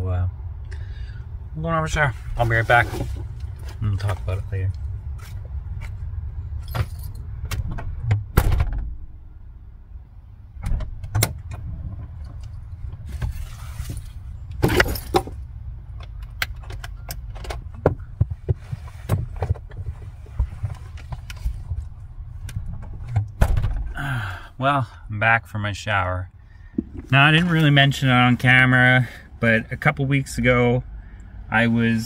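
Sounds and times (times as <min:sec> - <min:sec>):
steady low rumble: 0:00.0 - 0:32.0
rustling and scraping: 0:02.1 - 0:07.2, 0:11.8 - 0:15.4, 0:16.7 - 0:23.9, 0:26.6 - 0:28.8.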